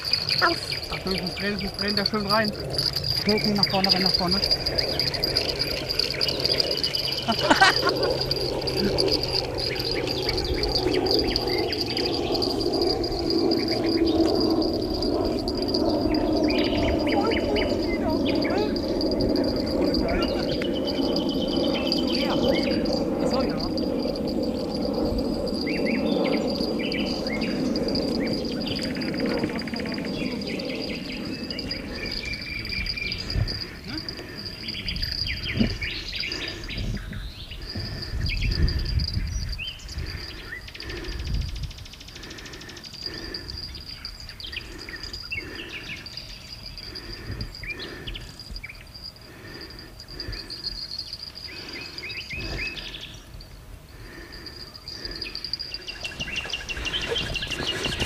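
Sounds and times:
low rumbling noise: 0.0 - 36.8
high-pitched insect drone: 0.0 - 58.0
small birds chirping: 0.0 - 58.0.

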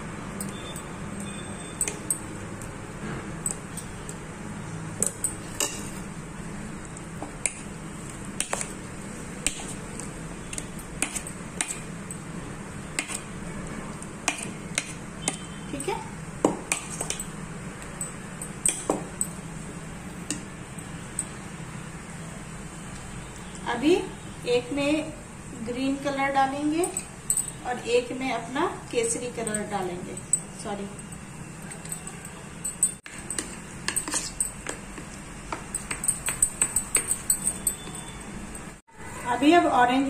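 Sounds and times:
spoon clinking against bowls: 0.4 - 2.7, 3.4 - 4.2, 5.0 - 6.1, 7.2 - 13.3, 16.5 - 19.5, 26.8 - 27.6, 29.4 - 38.8.

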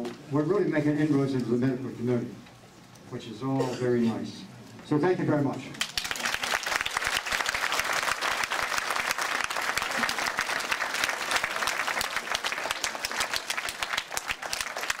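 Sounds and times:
audience applauding: 5.8 - 15.0.

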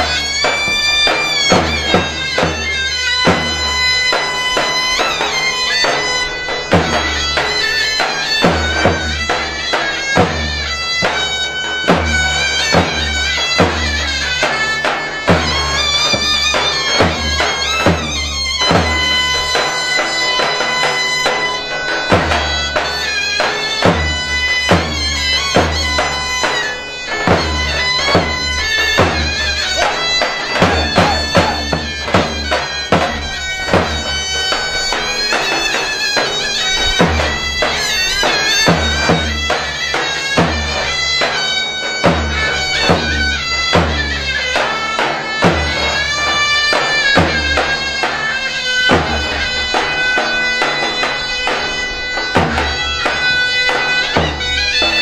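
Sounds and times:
deep drum beats: 0.0 - 19.2, 22.1 - 40.8
reedy shawm melody: 0.0 - 55.0.

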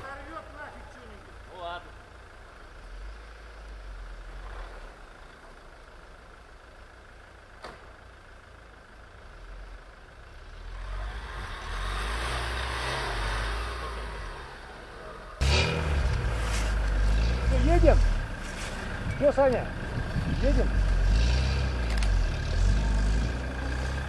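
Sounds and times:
suv engine revving: 9.5 - 24.0
tyres churning through snow: 9.5 - 24.0.

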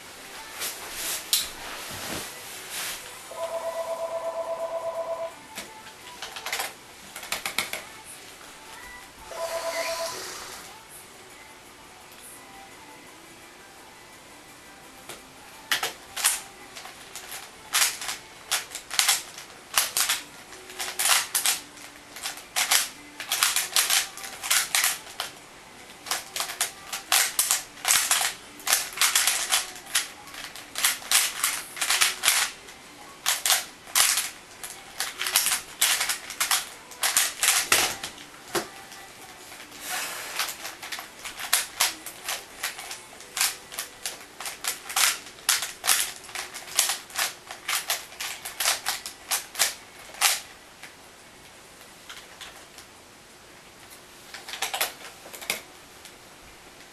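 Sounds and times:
puzzle cube clicking: 15.7 - 25.4, 26.0 - 38.9, 40.4 - 50.4.

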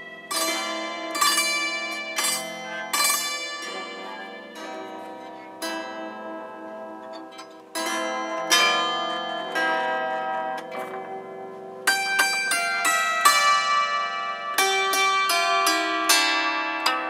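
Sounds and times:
keyboard zither melody: 0.0 - 17.0.

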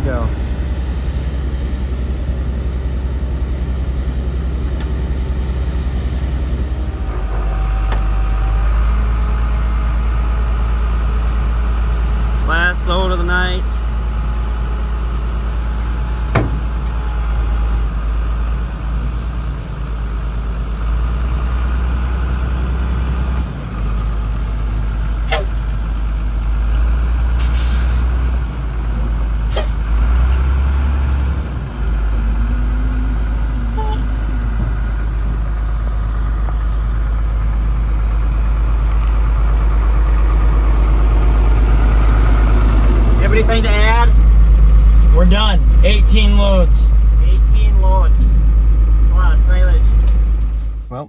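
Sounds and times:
truck engine rumbling: 0.0 - 51.0.

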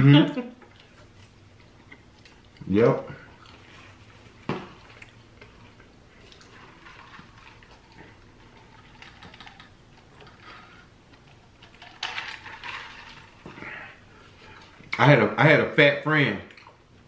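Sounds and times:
chewing: 0.6 - 15.0.

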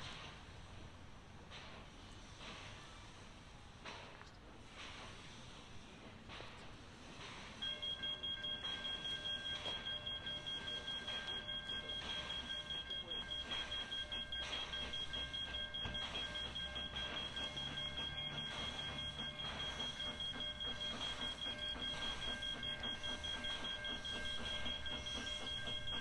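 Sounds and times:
level crossing warning bell: 7.6 - 26.0.

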